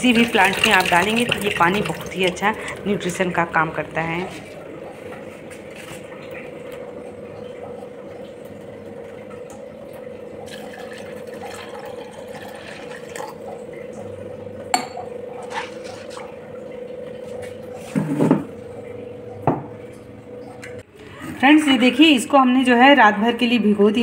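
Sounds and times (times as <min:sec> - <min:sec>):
water pouring into a pot: 0:00.0 - 0:03.4, 0:07.3 - 0:14.0
steady hum: 0:00.0 - 0:22.9.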